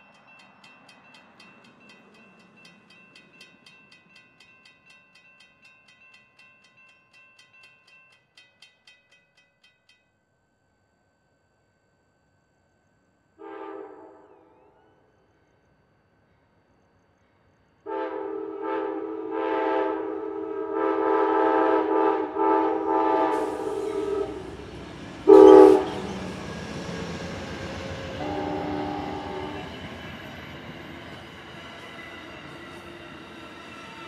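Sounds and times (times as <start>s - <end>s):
locomotive air horn blasts: 13.4s - 14.3s, 17.9s - 24.6s, 25.3s - 26.1s, 28.2s - 29.7s
train cars rumbling by: 16.6s - 34.0s.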